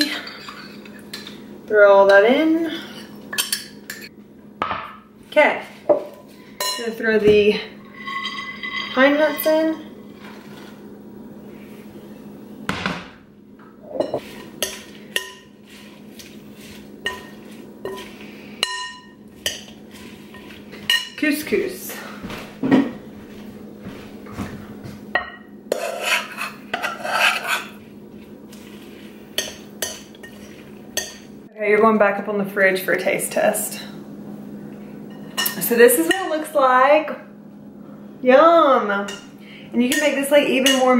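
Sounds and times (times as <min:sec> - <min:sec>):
kitchenware clinking on glass bowl: 0:00.0 - 0:01.4, 0:02.9 - 0:04.1, 0:06.6 - 0:06.9, 0:07.8 - 0:09.7, 0:35.1 - 0:36.3
faint steady hum: 0:00.0 - 0:40.9.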